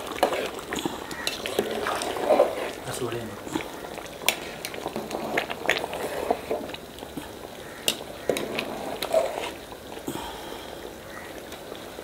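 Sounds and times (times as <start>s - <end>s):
water bubbling: 0.0s - 12.0s
metal spoon scraping a pot: 0.2s - 2.8s, 7.8s - 9.6s.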